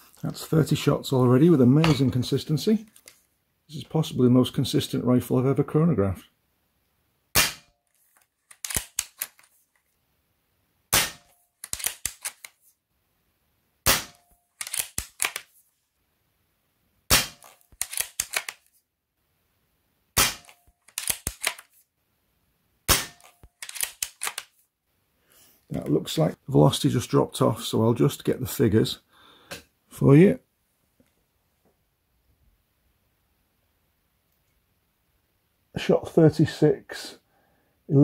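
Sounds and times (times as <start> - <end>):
air rifle shots: 7.4 - 7.7, 10.9 - 12.2, 13.9 - 15.3, 17.1 - 18.4, 20.2 - 21.5, 22.9 - 24.3
metallic bolt clicks: 8.5 - 9.5, 11.6 - 12.6, 14.6 - 15.5, 17.4 - 18.6, 20.3 - 21.7, 23.0 - 24.5.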